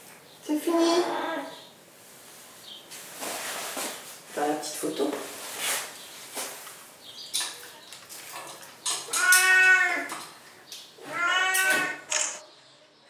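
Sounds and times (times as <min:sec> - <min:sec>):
long animal cries: 0:09.1 - 0:10.1, 0:11.0 - 0:12.1.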